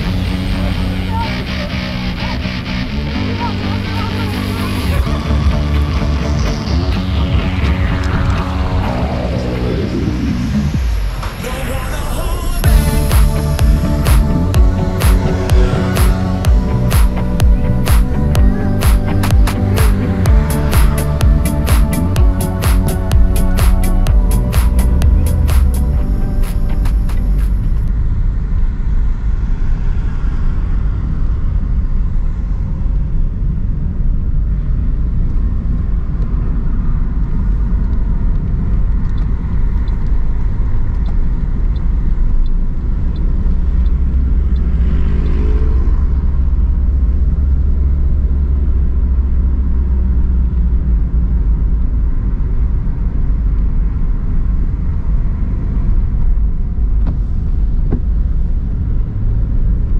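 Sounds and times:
vehicle passing close: 0:00.0 - 0:33.9, 0:36.6 - 0:50.4
cars passing: 0:00.0 - 0:59.9.

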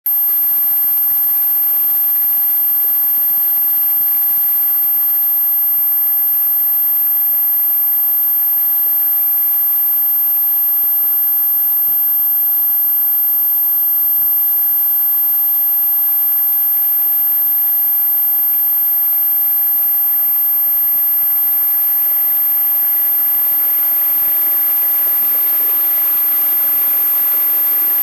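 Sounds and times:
thin steady whine: 0:20.6 - 0:28.0.

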